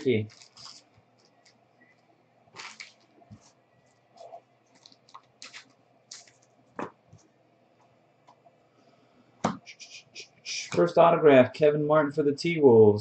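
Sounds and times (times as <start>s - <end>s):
trading cards shuffled by hand: 4.2s - 6.9s.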